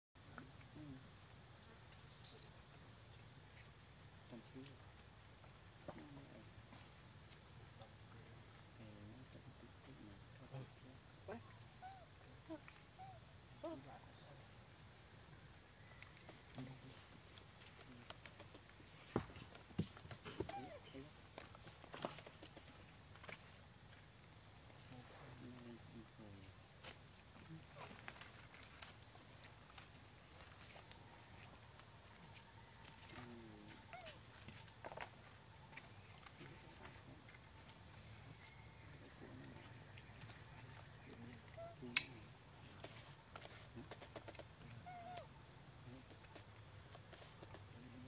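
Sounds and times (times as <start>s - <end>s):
high insect drone: 0.2s - 48.0s.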